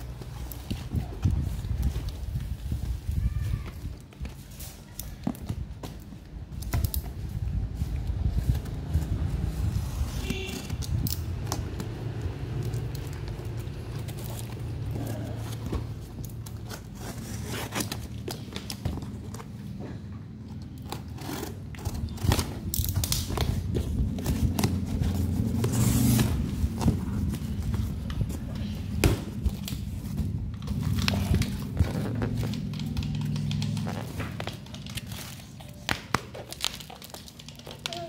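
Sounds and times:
knife slitting packing tape: 0:20.7 - 0:26.4
cardboard flaps rustling: 0:21.1 - 0:38.0.

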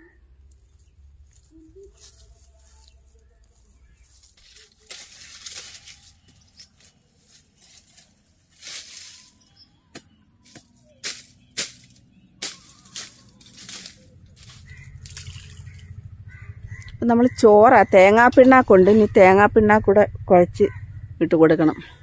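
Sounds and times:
dry leaves rustling: 0:00.6 - 0:16.9
twigs snapping: 0:04.2 - 0:09.3, 0:10.0 - 0:15.9.

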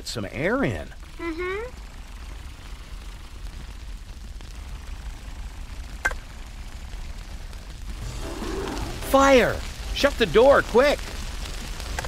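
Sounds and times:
low steady rumble: 0:00.0 - 0:10.3
faint hiss: 0:02.2 - 0:12.0.

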